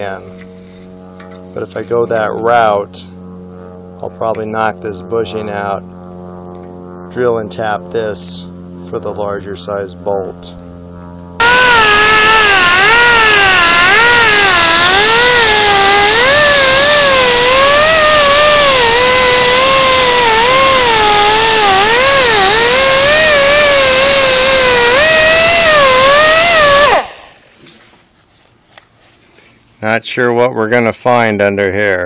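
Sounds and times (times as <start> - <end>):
air grinder whine: 11.4 - 27.5.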